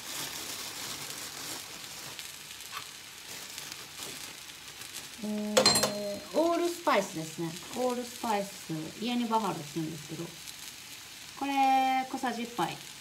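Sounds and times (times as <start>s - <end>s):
short crackle: 0.0s - 5.5s
food sizzling in oil: 0.0s - 13.0s
person speaking: 5.2s - 10.3s.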